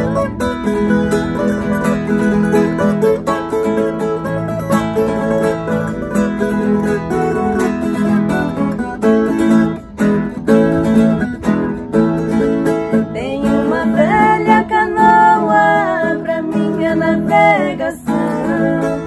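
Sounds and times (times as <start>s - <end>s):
nylon-string acoustic guitar: 0.0s - 19.0s
viola caipira: 0.0s - 19.0s
women singing: 13.1s - 19.0s.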